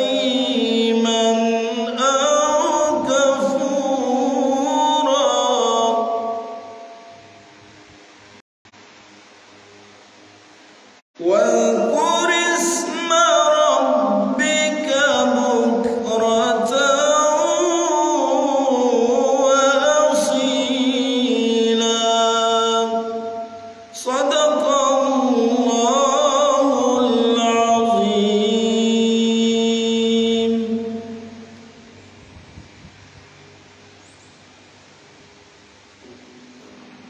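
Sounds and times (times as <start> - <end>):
man reciting melodically: 0.0 - 6.6, 11.2 - 31.5.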